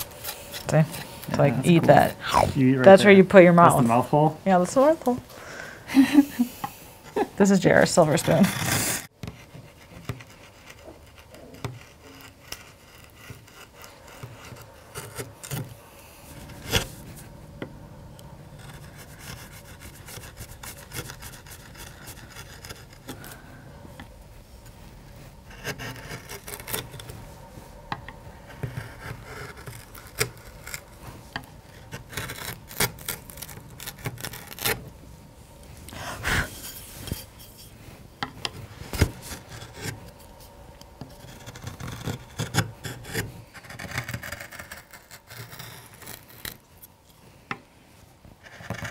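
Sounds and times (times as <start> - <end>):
carving gouge scraping wood: 0.0 - 2.2, 7.8 - 17.4, 18.5 - 23.4, 25.3 - 27.1, 27.9 - 34.9, 38.4 - 46.6, 48.4 - 48.9.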